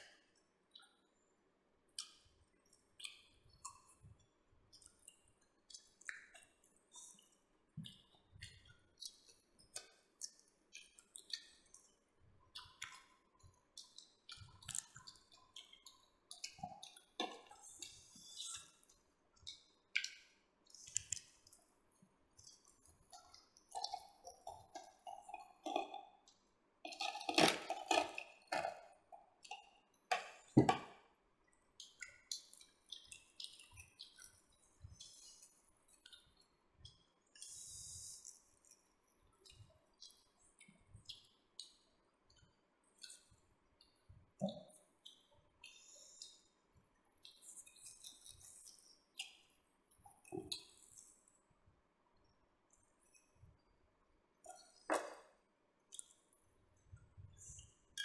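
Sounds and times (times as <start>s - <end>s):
people chewing: 4.7s - 30.8s, 31.5s - 46.6s, 47.2s - 51.4s.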